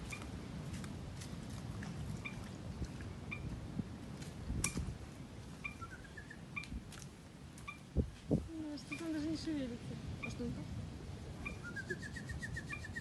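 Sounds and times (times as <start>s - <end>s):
small birds chirping: 5.6s - 6.8s, 8.6s - 9.4s, 11.4s - 13.0s.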